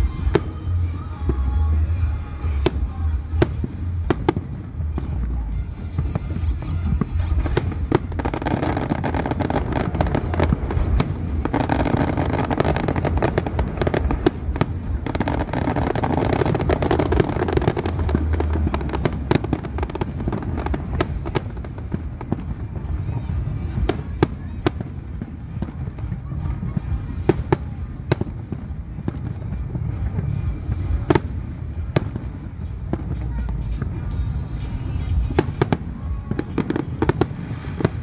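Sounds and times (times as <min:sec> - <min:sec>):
fireworks bangs and crackles: 0:00.0 - 0:38.0
low rumble: 0:00.0 - 0:38.0.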